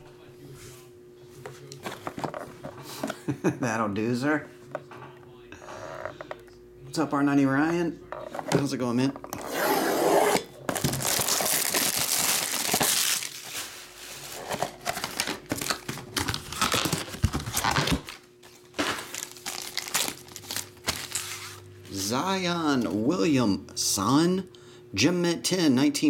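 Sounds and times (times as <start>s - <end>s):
plastic shrink-wrap crinkling: 10.7s - 21.6s.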